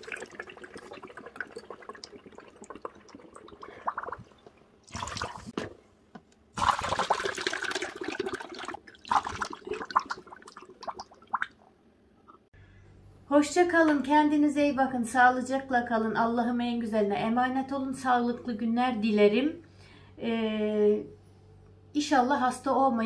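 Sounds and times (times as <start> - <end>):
liquid pouring through funnel: 0.0 - 5.8, 6.6 - 11.6.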